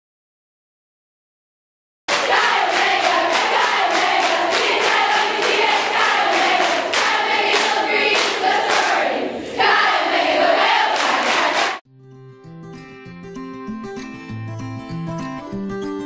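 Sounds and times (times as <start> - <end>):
sharp rhythmic strokes: 2.1 - 11.8
women singing a chant in unison: 2.2 - 11.8.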